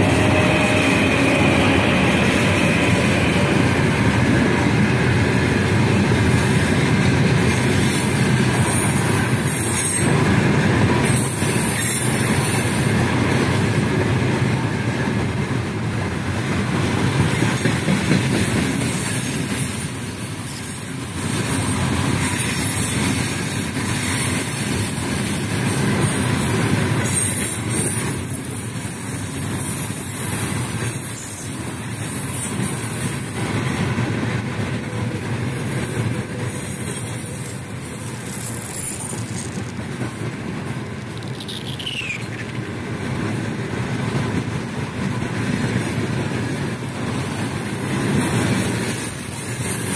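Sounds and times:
train wheels rumbling on rails: 0.0s - 49.9s
high-pitched wheel squeals: 45.7s - 48.5s.

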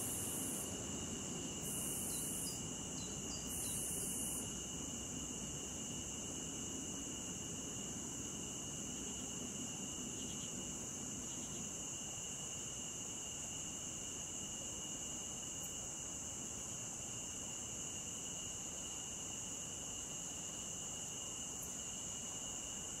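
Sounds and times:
insects singing: 0.0s - 4.4s.

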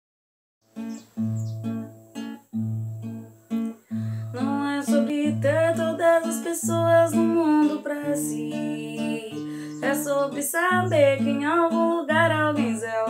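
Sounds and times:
acoustic guitar strumming: 0.7s - 13.0s
person singing: 4.3s - 13.0s.

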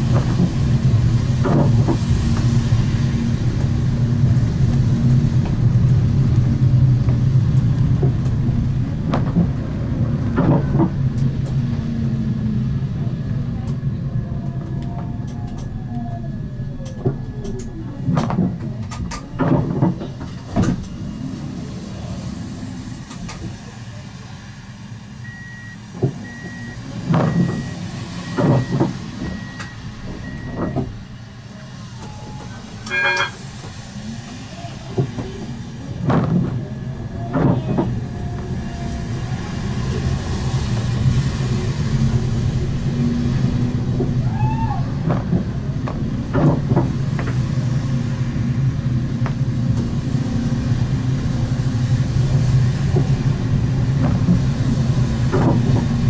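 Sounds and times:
tram motor hum: 0.0s - 56.0s
high warning beeps: 32.9s - 33.4s
short ring: 32.9s - 33.4s.

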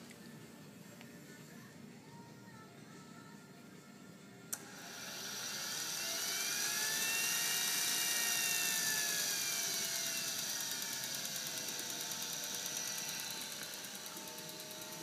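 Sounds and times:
jet turbine starter whine: 4.5s - 15.0s.

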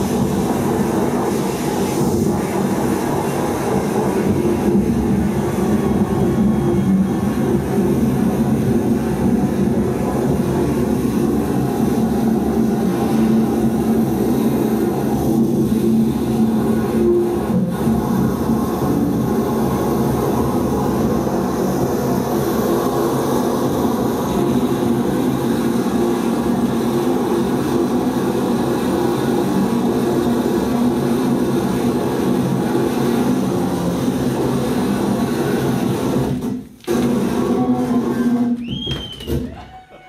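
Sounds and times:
electronic noise drone: 0.0s - 38.6s.

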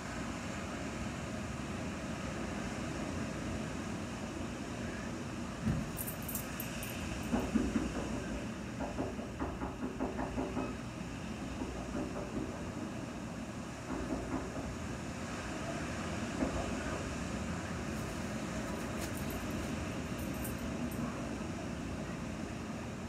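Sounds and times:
collar tags jingling: 5.8s - 7.0s, 18.0s - 21.0s
soft knocks and shuffles: 17.9s - 21.0s.

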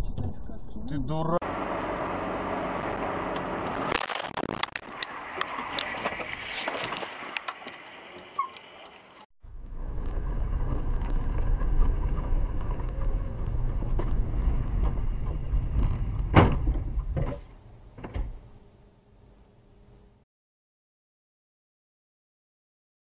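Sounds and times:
car road and engine rumble: 1.1s - 20.2s
car collision bang: 16.3s - 17.5s.

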